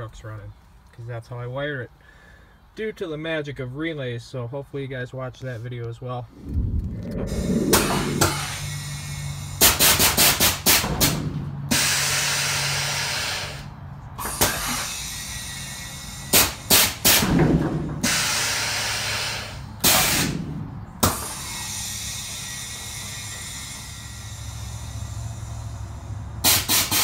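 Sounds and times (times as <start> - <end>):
steady low hum: 6.3 - 9.7
air hissing: 6.4 - 10.9, 11.7 - 17.3, 21.0 - 27.0.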